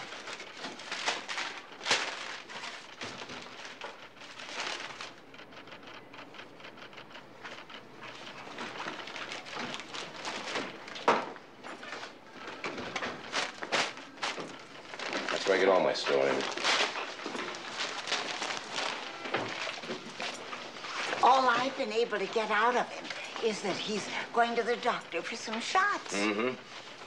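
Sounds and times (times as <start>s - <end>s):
paper rustling and crinkling: 0.0s - 5.2s, 7.4s - 27.0s.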